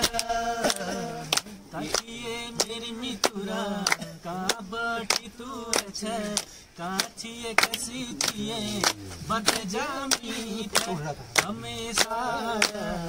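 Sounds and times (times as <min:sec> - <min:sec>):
hand claps: 0:00.0 - 0:13.0
men singing folk song: 0:00.0 - 0:13.0.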